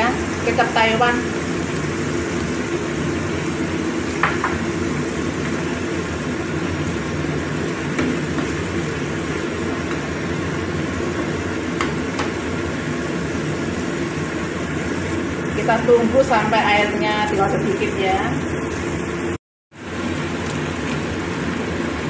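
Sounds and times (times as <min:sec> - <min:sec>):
sauce simmering in a wok: 0:00.0 - 0:15.8, 0:18.4 - 0:22.0.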